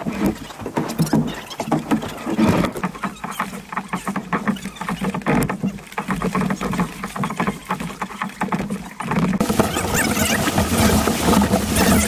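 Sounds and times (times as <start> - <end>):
kayak paddles splashing in water: 0.0 - 12.0
paddle knocks: 0.0 - 12.0.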